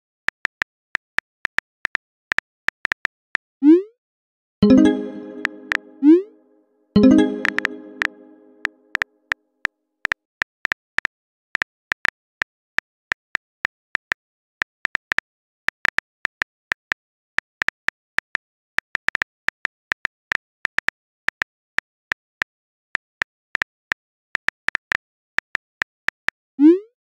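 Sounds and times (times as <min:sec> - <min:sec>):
touchscreen keyboard typing clicks: 0:04.6 - 0:06.1, 0:07.0 - 0:08.7.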